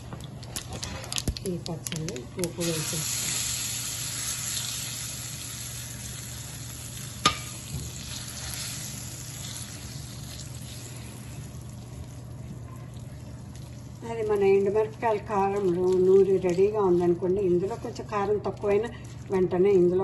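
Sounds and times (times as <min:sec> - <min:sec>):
hot oil sizzling in a pan: 0:02.6 - 0:11.5
spatula tapping a pan: 0:07.2 - 0:07.6.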